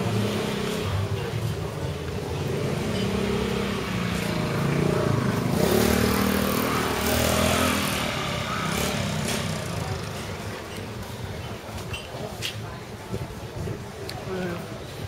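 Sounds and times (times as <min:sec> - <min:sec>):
cars passing by: 0:00.0 - 0:15.0.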